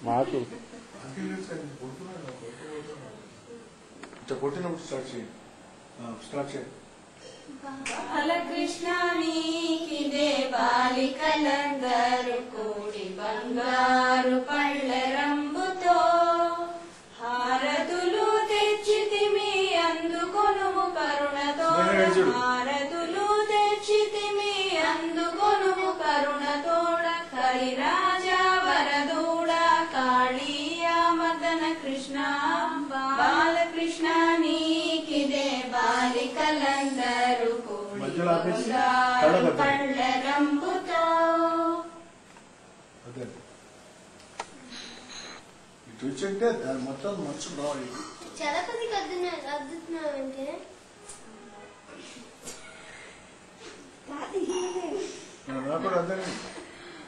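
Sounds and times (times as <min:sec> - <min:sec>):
women and girls singing: 0:07.6 - 0:42.2.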